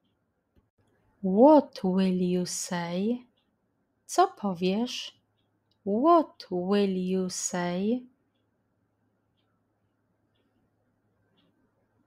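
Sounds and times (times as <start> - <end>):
faint small ticks: 3.2 - 3.6, 9.2 - 12.0.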